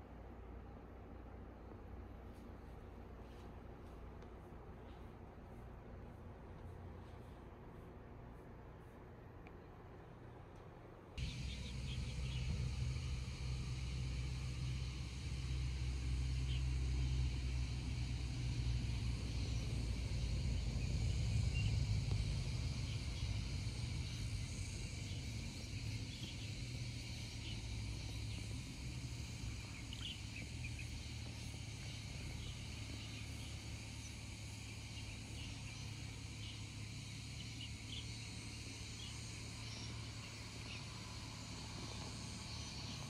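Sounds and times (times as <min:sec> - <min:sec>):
insects chirping: 0:11.2 - 0:43.0.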